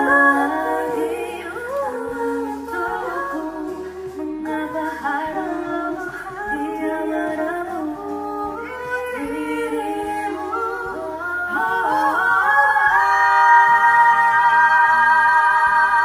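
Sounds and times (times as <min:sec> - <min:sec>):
women singing in harmony: 0:00.0 - 0:16.0.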